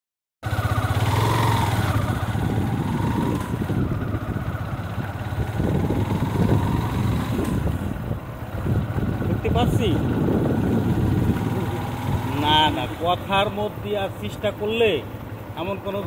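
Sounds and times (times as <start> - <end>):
road noise: 0.4 - 16.0
vehicle engine running: 0.4 - 16.0
wind noise: 1.1 - 12.4.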